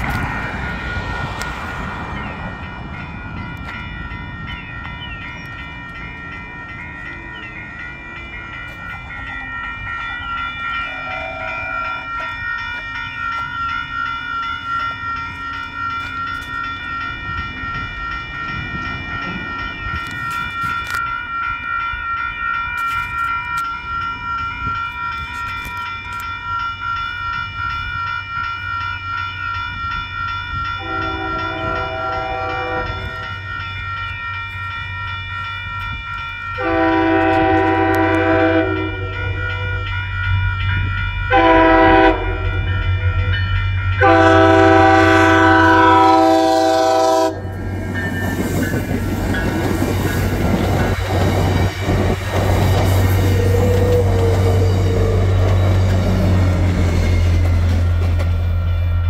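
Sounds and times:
crossing warning bell ringing: 0.0s - 59.0s.

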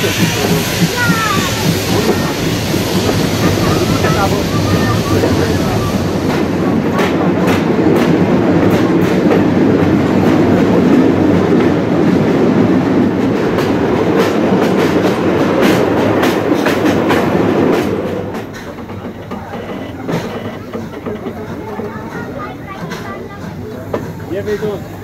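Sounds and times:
train wheel rumble: 0.0s - 25.0s
wheels clicking over rail joints: 13.4s - 24.8s.

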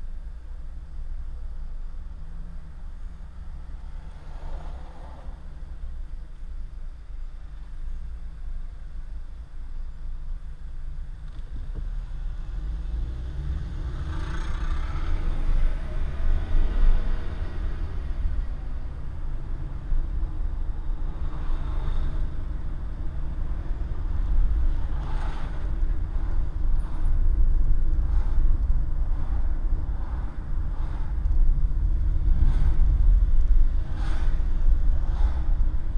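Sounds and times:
car engine and road rumble: 0.0s - 35.9s.

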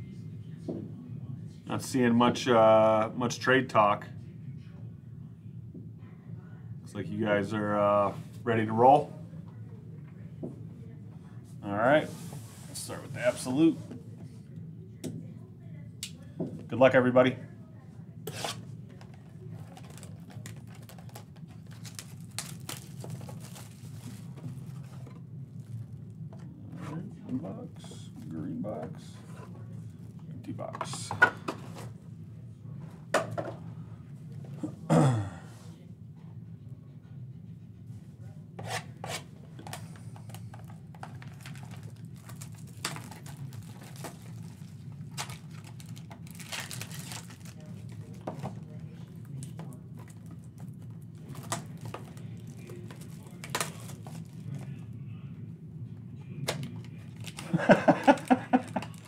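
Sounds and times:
plastic wrap crinkling and tearing: 19.5s - 24.9s, 40.6s - 48.4s, 49.2s - 54.6s, 56.6s - 59.0s.

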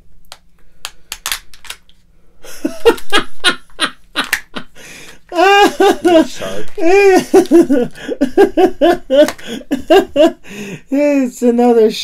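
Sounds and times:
man laughing: 2.4s - 11.0s.

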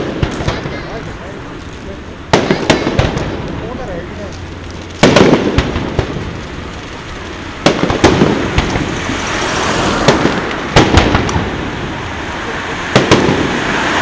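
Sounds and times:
fireworks bursting with echo: 0.0s - 14.0s.

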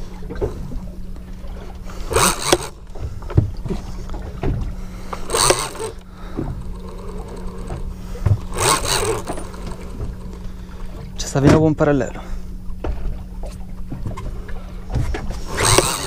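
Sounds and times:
boat engine humming: 0.0s - 16.0s
dull knocks: 7.6s - 10.2s.

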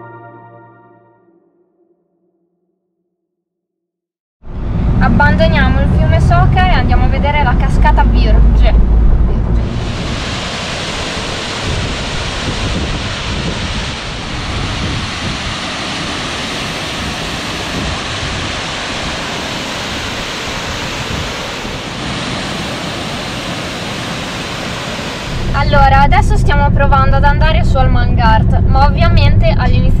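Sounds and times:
waterfall rushing: 9.6s - 25.6s.

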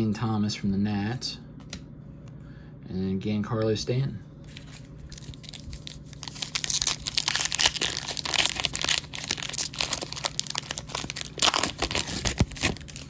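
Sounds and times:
wrapper tearing and crinkling: 4.5s - 13.0s.

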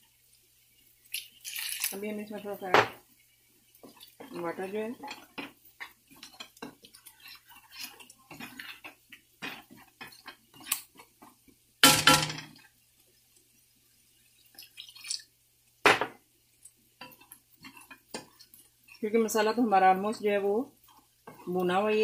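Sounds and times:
spatula scraping frying pan: 1.5s - 11.5s, 17.0s - 22.0s.

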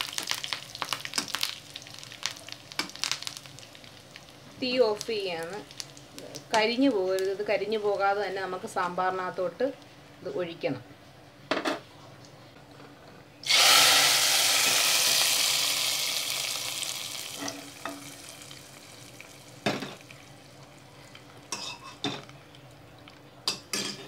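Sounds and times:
hot oil sizzling: 0.0s - 8.4s, 13.4s - 22.8s.

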